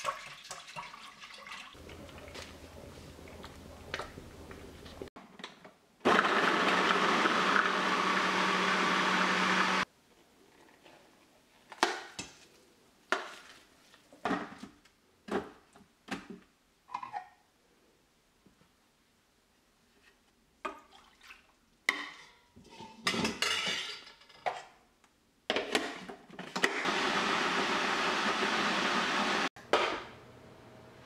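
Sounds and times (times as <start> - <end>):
blender grinding: 6.1 - 9.8, 26.7 - 29.5.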